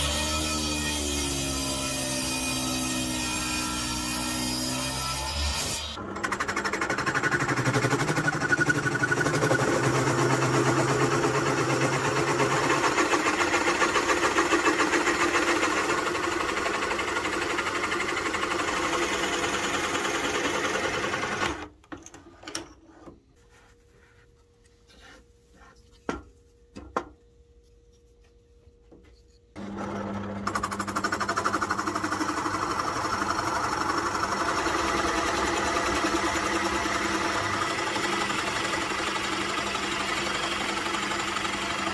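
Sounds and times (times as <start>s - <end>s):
drill press boring into wood: 6.0s - 21.7s, 29.6s - 41.9s.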